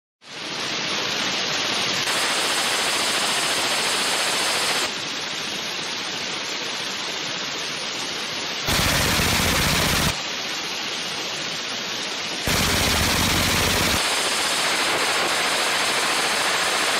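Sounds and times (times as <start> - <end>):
suppressed machine gun firing: 8.7 - 10.2, 12.5 - 16.9.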